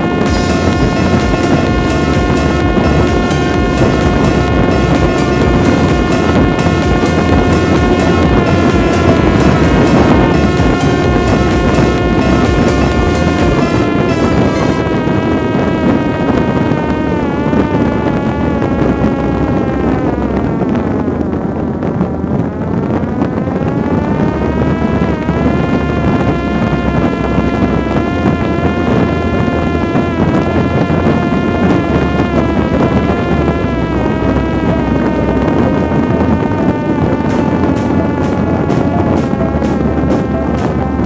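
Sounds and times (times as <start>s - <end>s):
drone motor and propeller whining: 0.0s - 41.0s
wind rushing over microphone: 0.0s - 41.0s.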